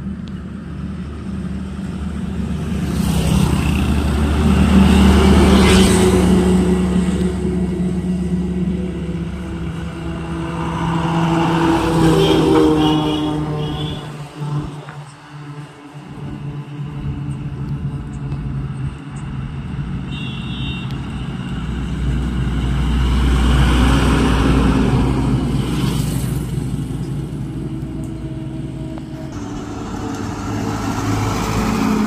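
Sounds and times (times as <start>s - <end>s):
heavily loaded lorry passing: 0.0s - 32.0s
trucks passing on a road: 0.0s - 32.0s.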